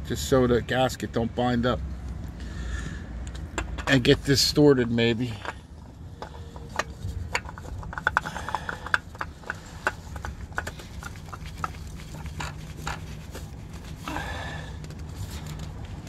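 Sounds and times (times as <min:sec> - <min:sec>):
hand clicks taps and scrapes: 0:06.2 - 0:13.9.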